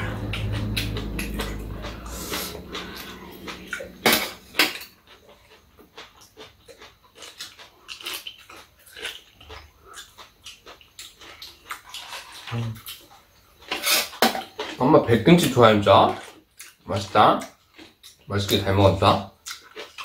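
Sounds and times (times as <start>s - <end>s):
chewing and lip-smacking: 0.0s - 14.8s, 16.1s - 18.6s, 19.3s - 20.0s
slurping from spoons: 1.3s - 4.9s.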